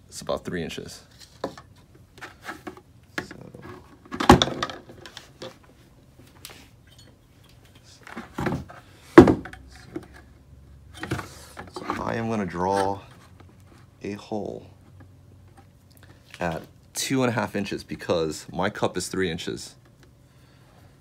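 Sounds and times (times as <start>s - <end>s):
plastic buckets knocking on wood: 8.4s - 9.6s.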